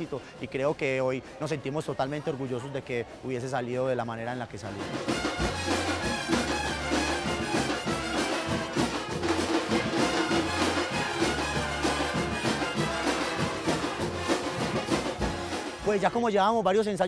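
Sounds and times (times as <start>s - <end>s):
brass band playing: 4.7s - 16.5s.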